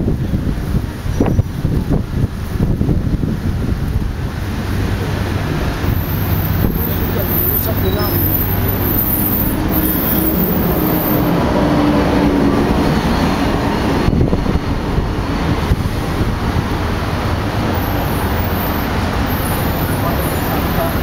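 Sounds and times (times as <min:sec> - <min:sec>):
road traffic rumble: 0:00.0 - 0:21.0
wind buffeting microphone: 0:00.0 - 0:21.0.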